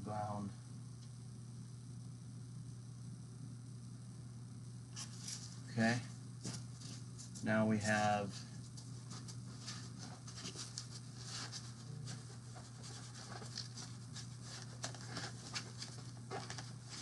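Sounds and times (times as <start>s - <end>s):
packaging scratching and rustling: 9.1s - 17.0s.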